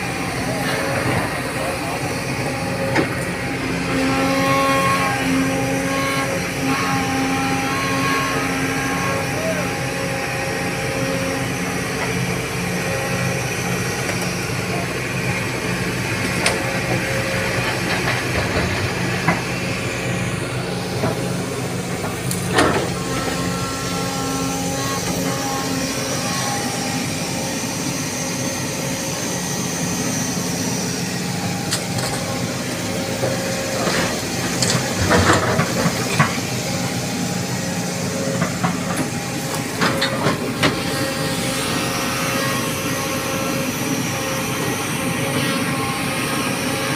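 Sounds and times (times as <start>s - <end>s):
excavator diesel engine: 0.0s - 46.9s.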